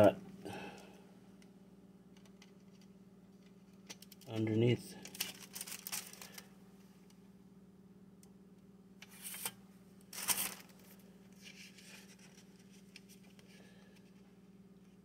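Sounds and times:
paper booklet rustling: 4.3 - 6.5, 9.1 - 14.2.

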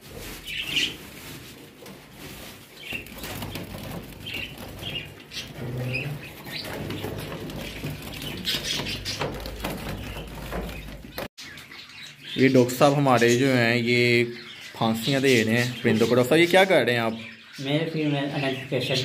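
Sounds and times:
rustling and handling noise: 0.0 - 11.6
finches chirping: 2.8 - 19.0.

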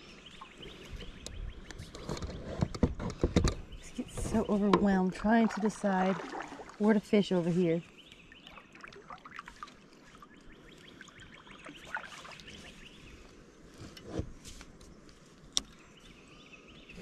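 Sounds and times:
water dripping and trickling: 5.0 - 12.8.

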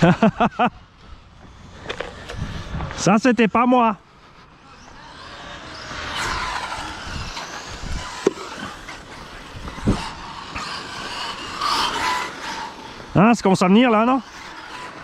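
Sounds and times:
electric motor whine: 0.0 - 15.0.

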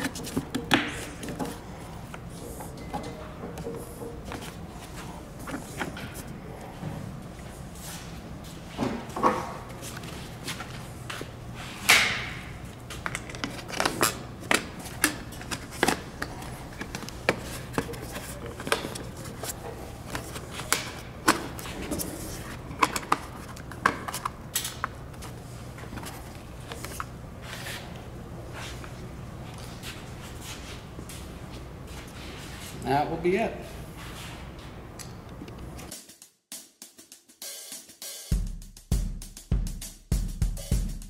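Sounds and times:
plastic covers clicking and clunking: 12.9 - 27.1.

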